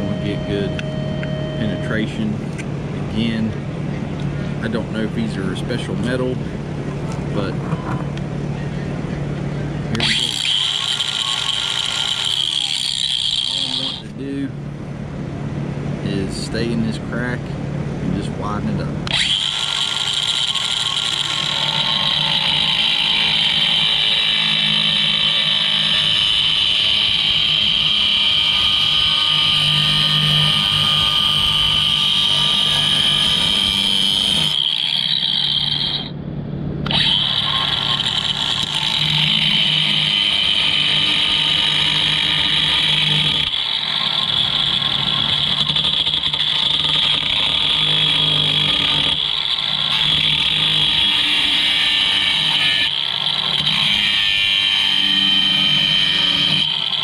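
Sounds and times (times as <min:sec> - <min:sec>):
angle grinder cutting metal: 0:09.9 - 0:14.4, 0:18.8 - 0:36.2, 0:36.8 - 0:57.0.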